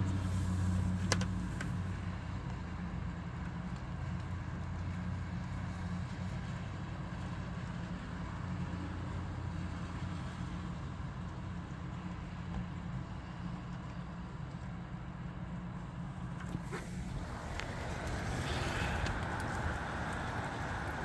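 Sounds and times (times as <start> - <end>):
rain: 16.6 - 21.0.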